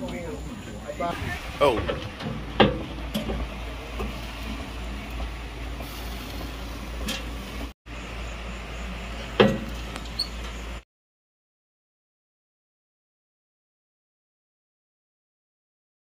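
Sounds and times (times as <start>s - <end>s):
low rumble with hiss: 0.0s - 10.8s.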